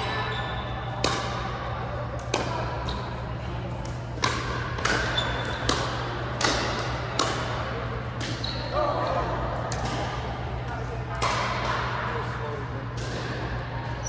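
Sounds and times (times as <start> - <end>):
paddles hitting plastic ball: 3.8 - 8.4.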